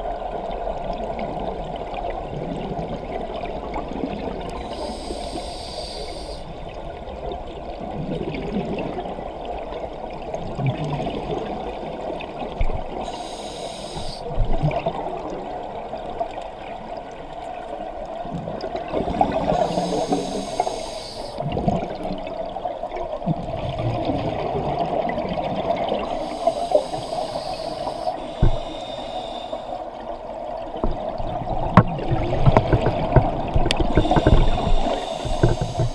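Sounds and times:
underwater hum: 0.0 - 35.9
regulator hissing on inhalation: 4.6 - 6.5, 13.0 - 14.3, 19.0 - 21.4, 26.1 - 29.8, 34.0 - 35.9
exhaled air bubbling: 18.2 - 35.9.

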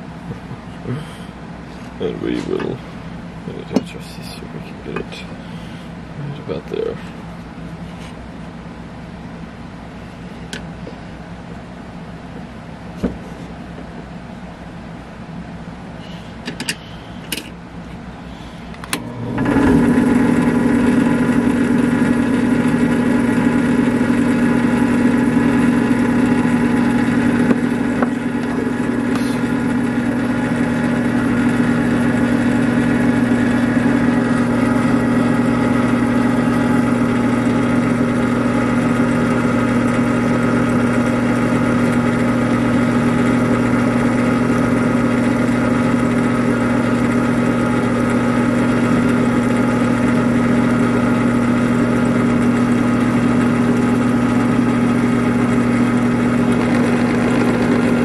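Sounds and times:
drill press motor humming: 15.9 - 58.0.

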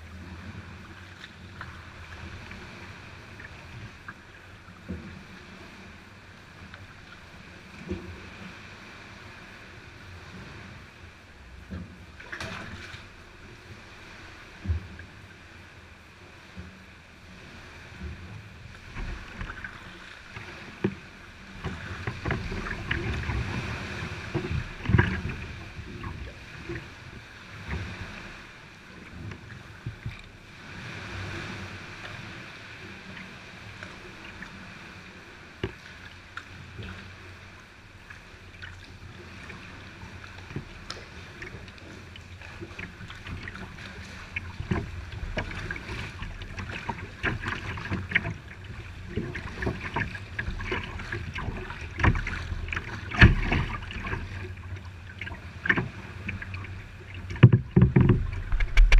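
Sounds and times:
paddle strokes splashing: 0.0 - 15.7, 16.3 - 58.9
water lapping against hull: 0.0 - 58.9
sharp splashes and knocks: 12.2 - 13.1, 49.1 - 54.4, 57.3 - 58.9.

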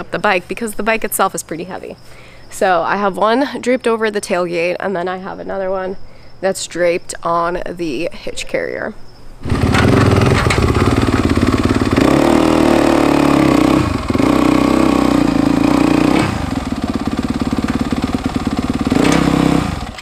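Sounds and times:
dirt bike engine running: 9.4 - 20.0.

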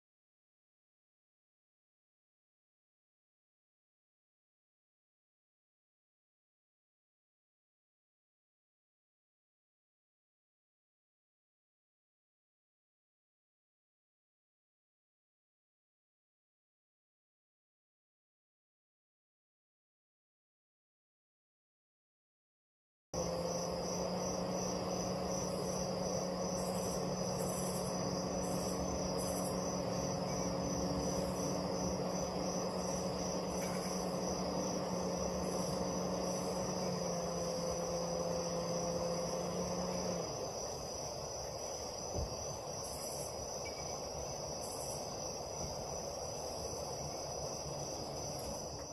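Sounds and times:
low hum: 23.2 - 42.0
crickets chirping: 23.2 - 48.9.

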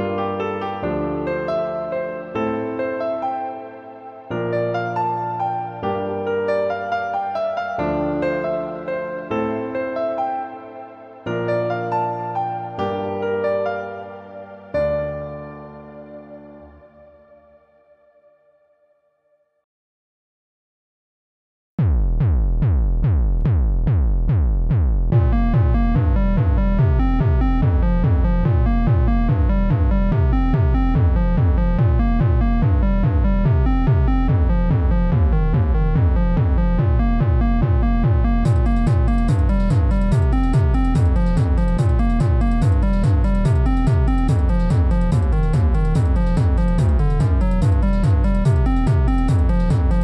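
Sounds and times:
electronic instrumental music: 0.0 - 17.6, 25.1 - 50.0
fast ticking layer: 25.1 - 50.0.

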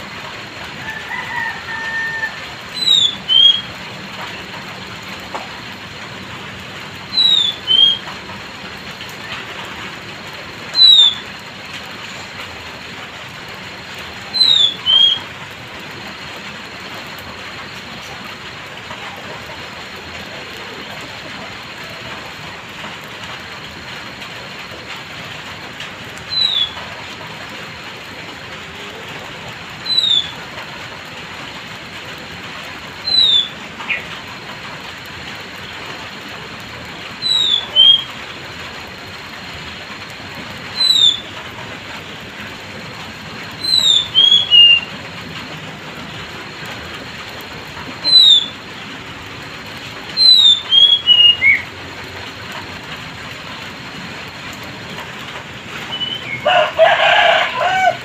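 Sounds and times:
light drizzle hissing: 0.0 - 58.0.

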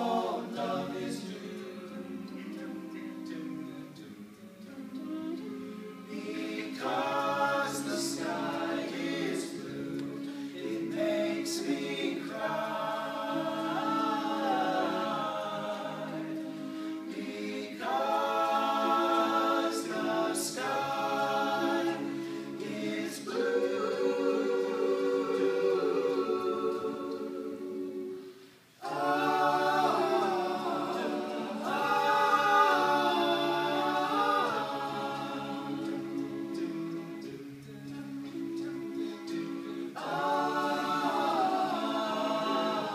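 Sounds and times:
a cappella group singing harmony: 0.0 - 42.9.

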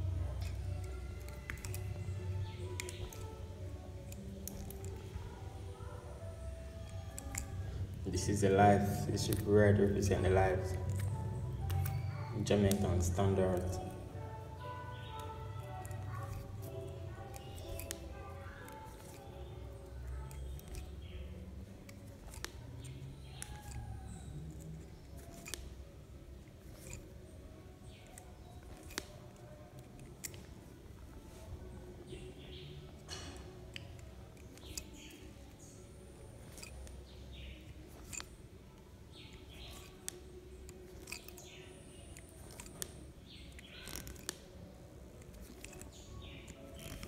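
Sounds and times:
hand tool clicking: 0.3 - 3.4, 4.0 - 5.1, 6.7 - 7.6, 8.3 - 14.0, 14.6 - 19.3, 20.0 - 21.2, 21.8 - 25.8, 26.6 - 27.2, 27.8 - 30.5, 32.9 - 35.8, 36.4 - 38.4, 39.2 - 44.5, 45.2 - 47.0.

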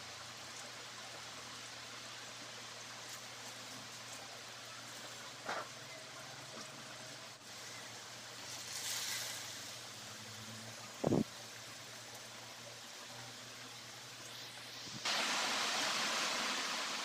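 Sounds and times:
meat sizzling in bubbling oil: 14.1 - 17.0.

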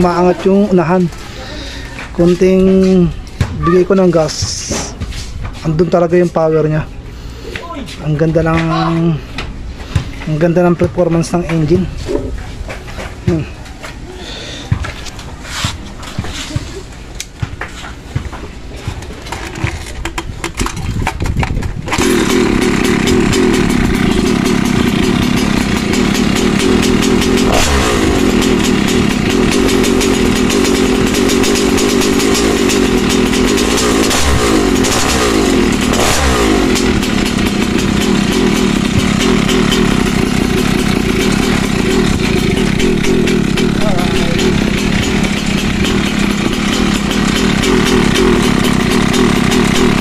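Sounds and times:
scooter engine revving: 21.8 - 50.0.

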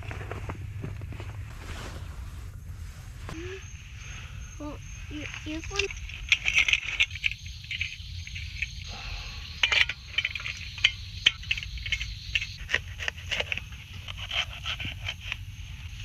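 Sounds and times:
insects chirring: 2.5 - 16.0
camp gear clicks and knocks: 5.2 - 8.9, 9.6 - 16.0.

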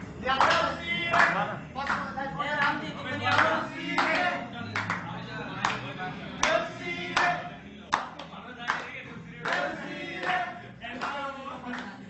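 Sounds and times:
group singing: 0.0 - 12.0
rhythmic hand clapping: 0.0 - 12.0.

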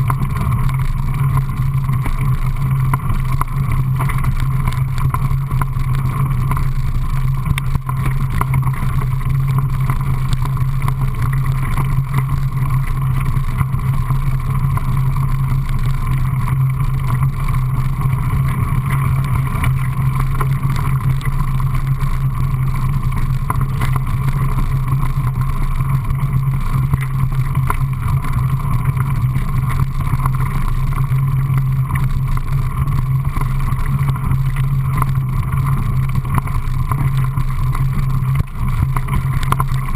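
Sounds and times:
bike tyres rumbling on gravel: 0.0 - 39.9.

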